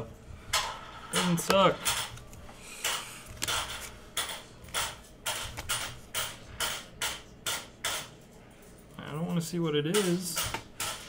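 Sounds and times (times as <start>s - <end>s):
cards flicked with crisp snaps: 1.2s - 8.0s.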